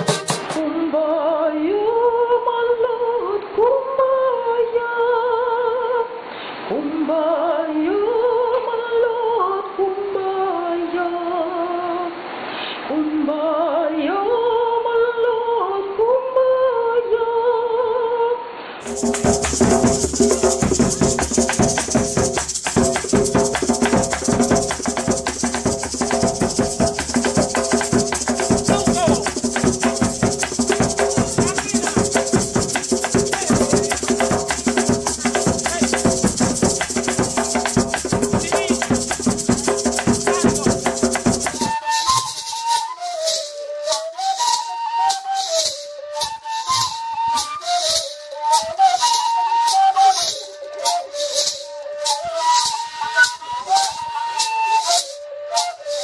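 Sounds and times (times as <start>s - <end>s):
cane flute with maraca: 0.0s - 0.7s, 18.8s - 56.0s
folk dance music with maracas: 0.0s - 0.8s, 18.8s - 56.0s
woman singing unaccompanied: 0.0s - 12.2s, 12.9s - 18.5s, 24.7s - 42.2s.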